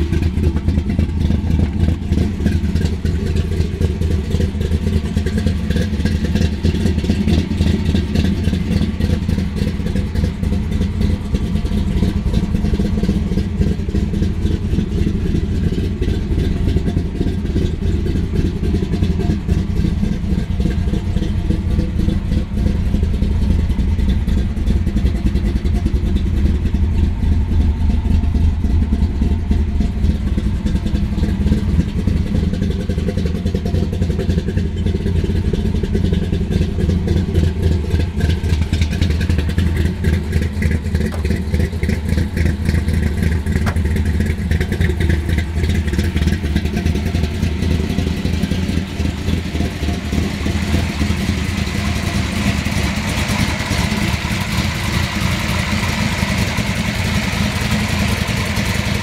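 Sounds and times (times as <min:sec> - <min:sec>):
car engine idling: 0:00.0 - 0:59.0.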